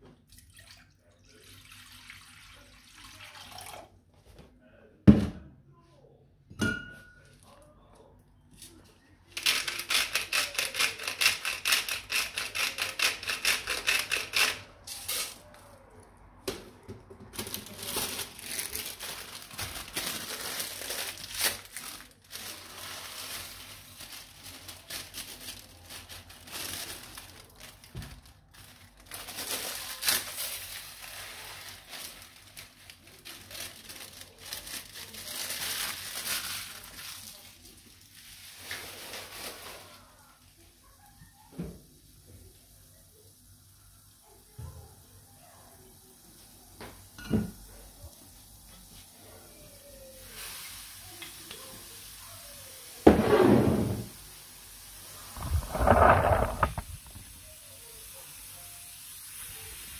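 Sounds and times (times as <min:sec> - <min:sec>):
rice pouring into water: 0:00.4 - 0:03.8
plastic bag crinkling: 0:17.3 - 0:39.9, 0:55.1 - 0:57.4.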